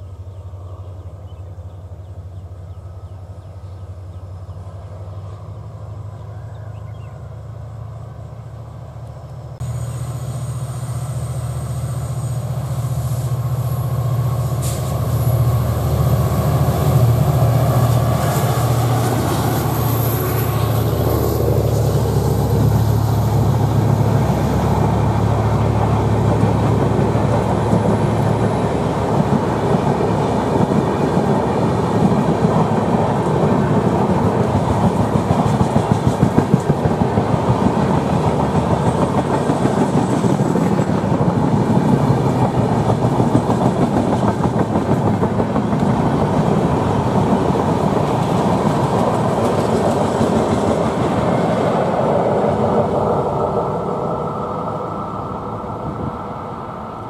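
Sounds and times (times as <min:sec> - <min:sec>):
train wheels clattering on track: 0:09.6 - 0:54.2.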